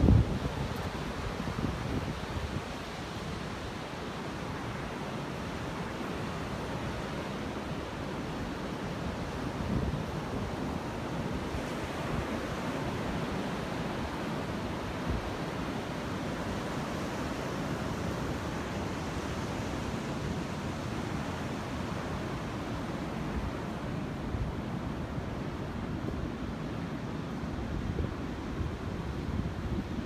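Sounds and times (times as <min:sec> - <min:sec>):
wind buffeting microphone: 0:00.0 - 0:02.8
ocean surf rushing: 0:00.0 - 0:30.0.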